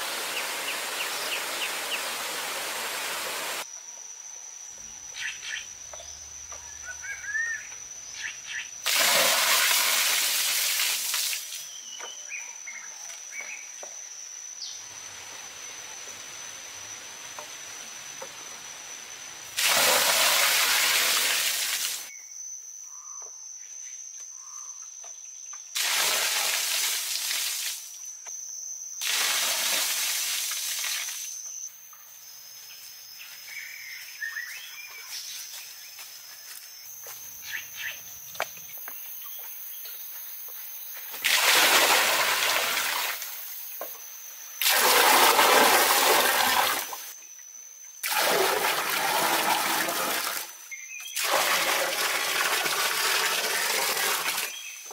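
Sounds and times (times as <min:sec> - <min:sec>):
quiet forest background: 0:00.0 - 0:54.9
water pouring and splashing: 0:08.8 - 0:11.6, 0:19.6 - 0:22.1, 0:25.8 - 0:27.9, 0:29.0 - 0:31.3, 0:41.1 - 0:43.4, 0:44.6 - 0:47.1, 0:48.0 - 0:50.6, 0:51.2 - 0:54.6.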